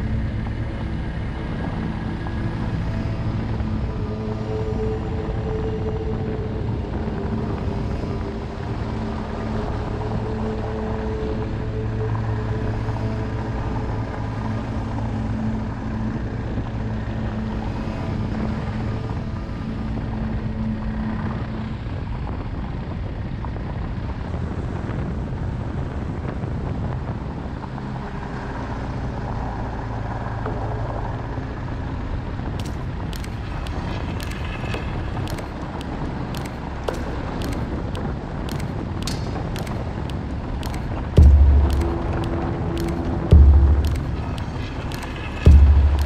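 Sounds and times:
wind noise on microphone: 0.0s - 46.0s
motorcycle engine running: 32.6s - 46.0s
quick sharp clicks: 32.6s - 46.0s.

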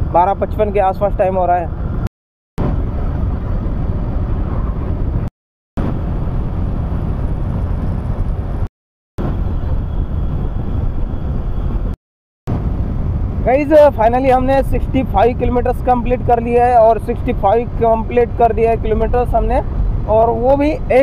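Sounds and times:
wind rushing over microphone: 0.0s - 21.0s.

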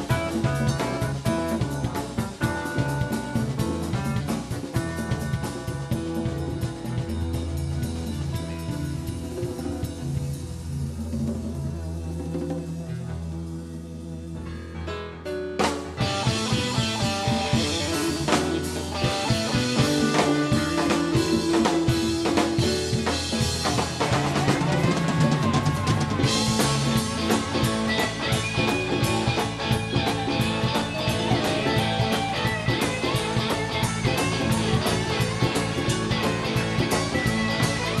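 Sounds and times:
live rock band playing: 0.0s - 38.0s
rapid drum hits: 15.6s - 38.0s.

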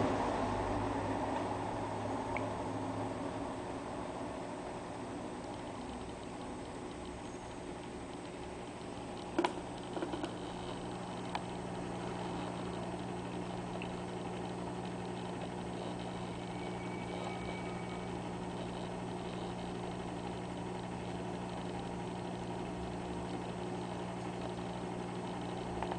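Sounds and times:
aquarium equipment humming: 0.0s - 25.9s.

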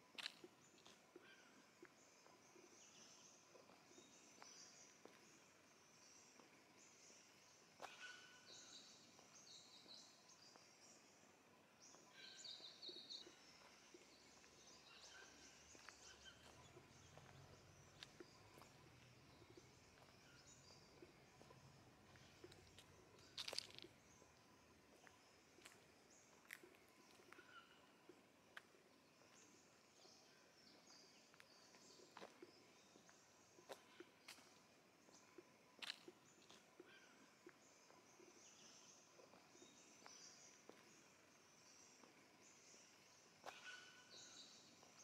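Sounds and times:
birds chirping: 0.1s - 45.0s.

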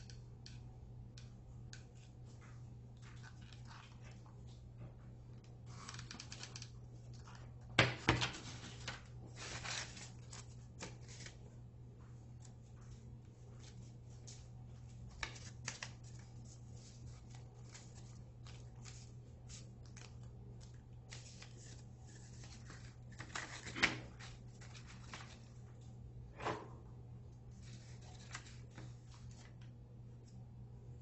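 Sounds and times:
faint low hum: 0.0s - 31.0s
paper rustling and crackling: 3.0s - 4.6s, 5.4s - 11.4s, 13.6s - 25.7s, 27.6s - 29.6s.

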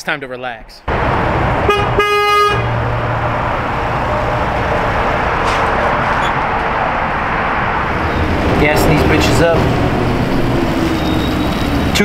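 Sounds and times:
vehicle rolling past: 0.9s - 12.0s
car horn toot: 1.6s - 2.8s.

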